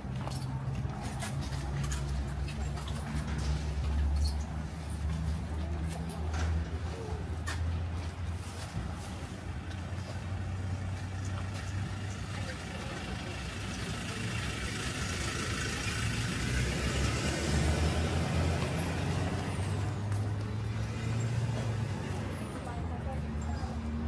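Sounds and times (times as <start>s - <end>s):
vehicle passing rush: 0.0s - 24.0s.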